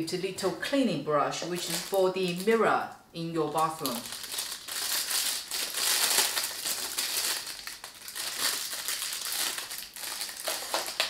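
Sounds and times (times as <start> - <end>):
plastic packaging crinkling: 1.4 - 2.7, 3.4 - 11.0.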